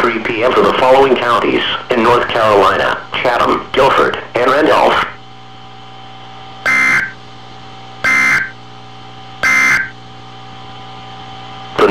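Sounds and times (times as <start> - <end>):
receiver hum and hiss: 0.0 - 11.9
two-tone digital warbling bursts: 6.6 - 7.2, 8.0 - 8.6, 9.4 - 10.0.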